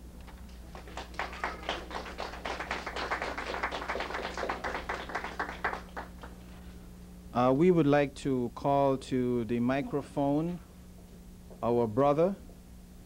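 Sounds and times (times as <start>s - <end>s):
audience applauding: 0.5s - 6.4s.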